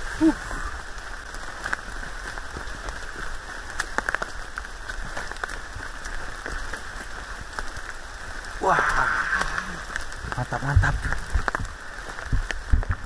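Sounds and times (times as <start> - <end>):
heavy rain falling: 0.0 - 13.0
raindrops tapping: 0.0 - 13.0.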